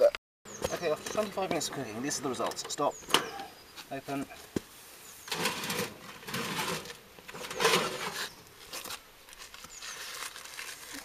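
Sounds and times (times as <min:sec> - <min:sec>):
box scraping and rustling: 0:05.2 - 0:09.0.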